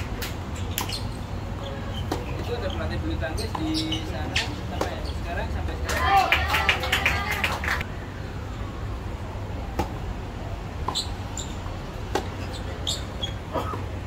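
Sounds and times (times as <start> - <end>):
short high squeaks: 0.6 - 2.4, 12.4 - 13.4.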